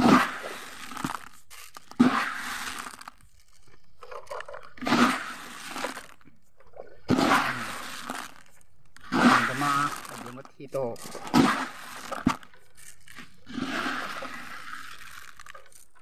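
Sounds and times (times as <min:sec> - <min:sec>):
sharp crunching cracks: 0:00.0 - 0:16.0.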